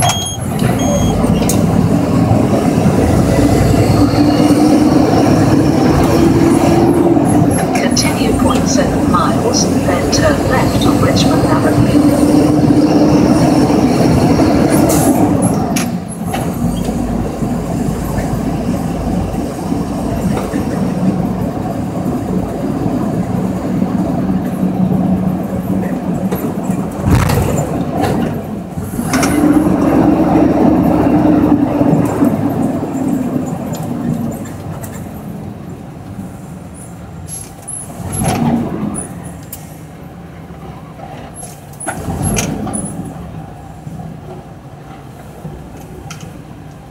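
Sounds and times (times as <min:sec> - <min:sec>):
truck diesel engine from cab: 0:00.0 - 0:46.9.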